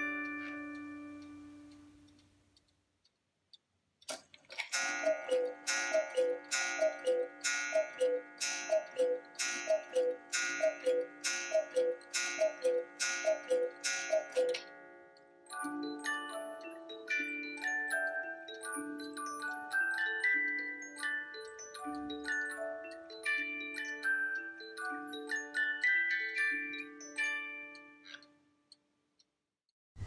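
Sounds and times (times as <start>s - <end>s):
music-box tune: 0.0s - 2.0s, 4.8s - 14.7s, 15.5s - 28.4s
clock movement click: 4.0s - 14.7s
cuckoo clock calls: 4.7s - 14.8s.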